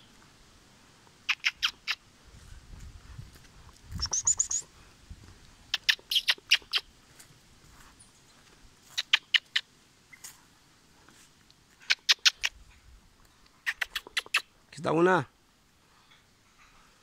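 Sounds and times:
monkeys calling: 1.3 - 2.0, 4.0 - 4.6.

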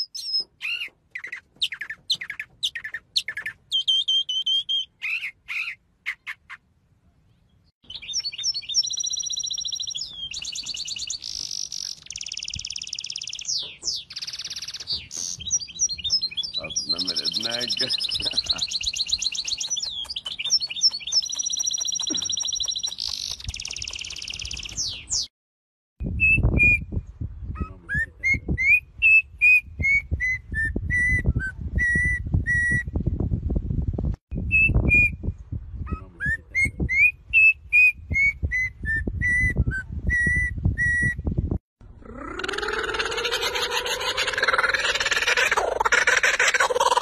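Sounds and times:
wind rumbling on microphone: 8.0 - 25.3, 26.0 - 46.2.

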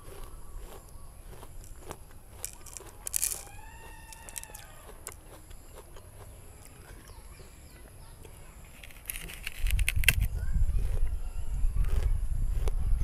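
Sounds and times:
crisp crunch: 0.0 - 13.0
fruit being chewed: 0.0 - 13.0
rooster crowing: 3.3 - 5.2.

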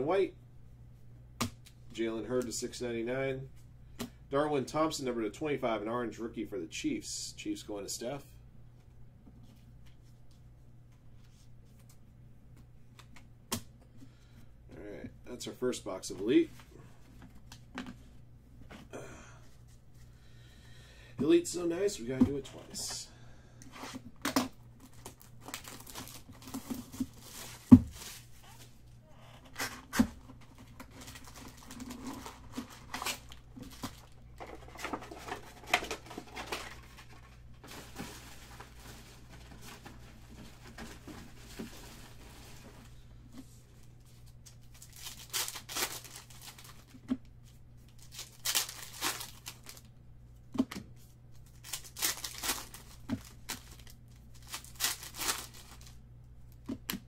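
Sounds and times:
foil packs crinkling and tearing: 24.8 - 28.6, 29.5 - 42.7, 44.6 - 47.1, 47.9 - 49.9, 51.4 - 56.0.

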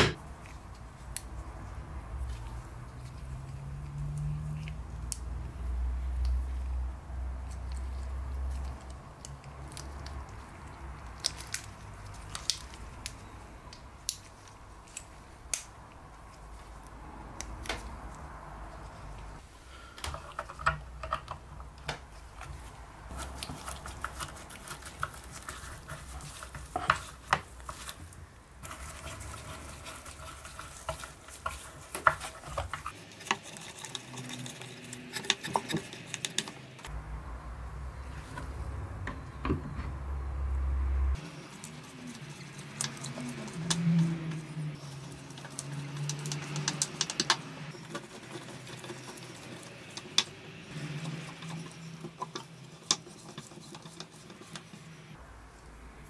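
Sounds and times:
small metal clicks and taps: 45.4 - 47.4.

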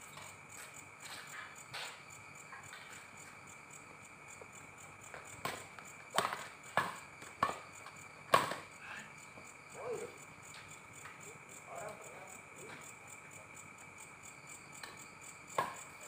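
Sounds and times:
rackets hitting shuttlecock: 5.4 - 7.6, 8.3 - 8.7.

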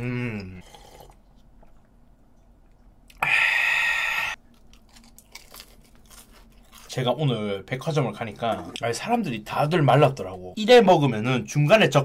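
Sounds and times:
loud breathy mouth sound: 3.1 - 4.4.

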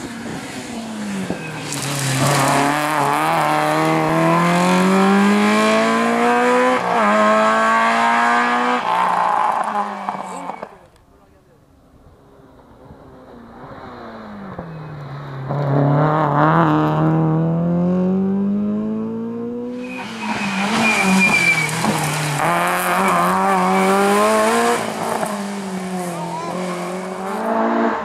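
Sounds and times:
rally car engine revving: 0.0 - 10.8, 12.5 - 28.0.

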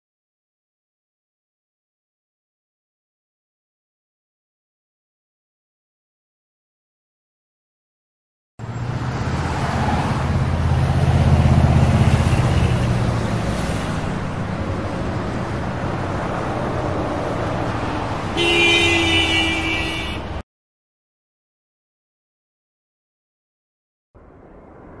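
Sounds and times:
traffic noise: 8.6 - 20.4, 24.2 - 25.0
car horn honk: 18.4 - 20.4.

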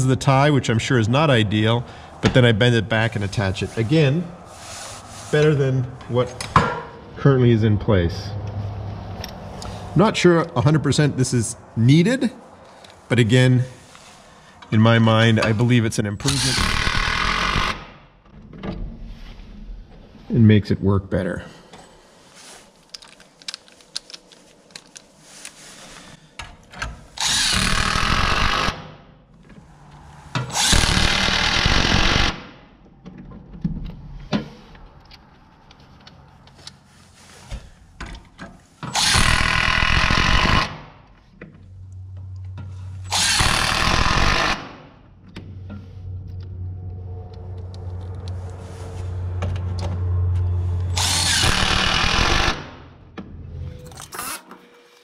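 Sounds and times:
impact driver driving screws: 16.3 - 17.9, 27.2 - 28.8, 30.4 - 32.4, 38.8 - 40.8, 43.1 - 44.8, 50.9 - 52.7.

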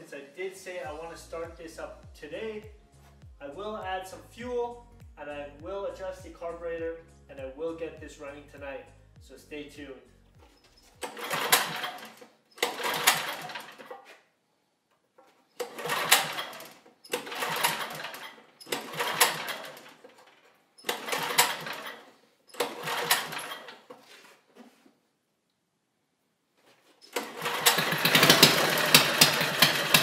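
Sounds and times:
recoil starter rope pulled: 10.4 - 14.2, 15.2 - 24.6, 26.9 - 30.0
engine cranking clatter: 10.9 - 14.0, 15.6 - 23.9, 27.0 - 30.0.

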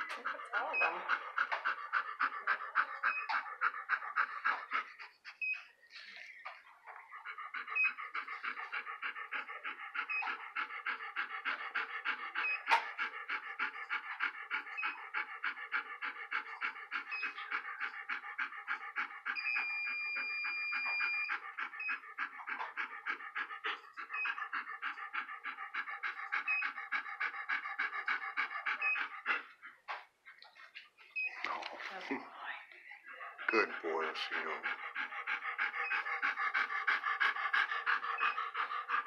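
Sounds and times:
dog panting: 0.0 - 39.0.

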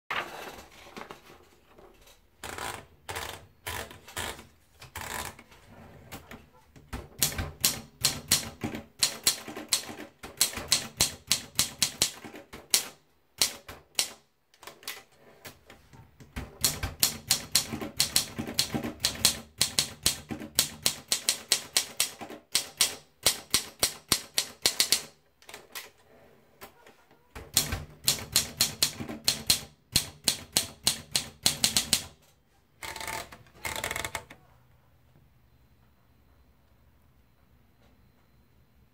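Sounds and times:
typewriter key strikes: 27.5 - 32.1.

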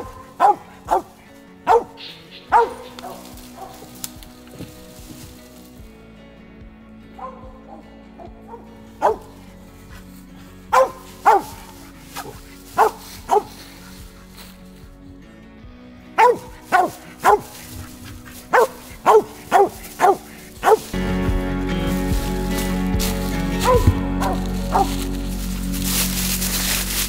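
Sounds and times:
dog barking: 0.0 - 3.9, 7.2 - 7.8, 8.5 - 9.4, 10.7 - 13.6, 16.2 - 17.8, 18.5 - 21.0, 23.6 - 24.9
background music: 0.0 - 27.0.

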